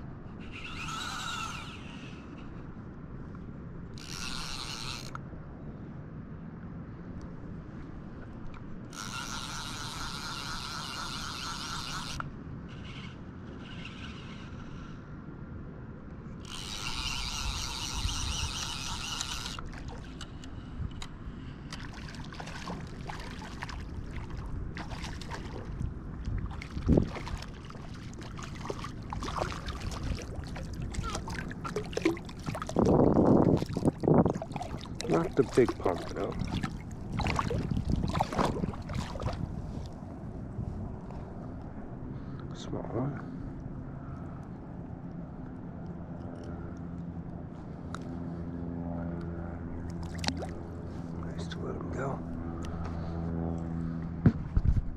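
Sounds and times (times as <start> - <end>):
fly reel clicker ratcheting: 4.0 - 5.2, 8.9 - 14.7, 16.4 - 21.2
fish splashing in water: 21.8 - 39.5, 49.9 - 50.8.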